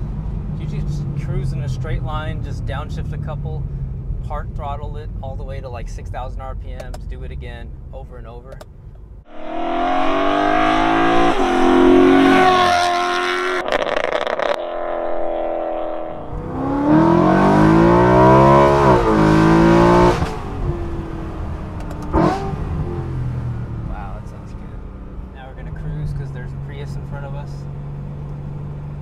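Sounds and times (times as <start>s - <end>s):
car engine revving: 9.3s - 29.0s.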